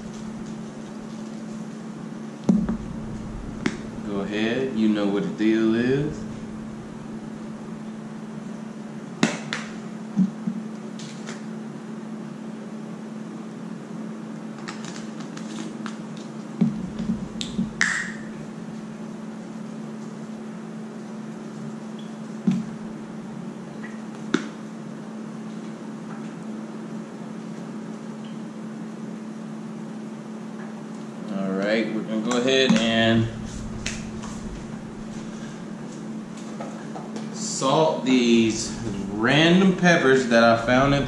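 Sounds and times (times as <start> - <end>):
steady low hum: 0.0 - 9.2, 16.4 - 24.8, 32.2 - 41.0.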